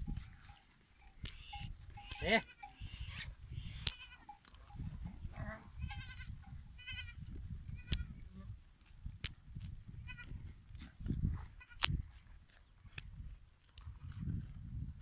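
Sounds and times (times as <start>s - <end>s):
goats bleating: 1.3s - 4.4s, 5.3s - 7.2s, 10.0s - 10.3s.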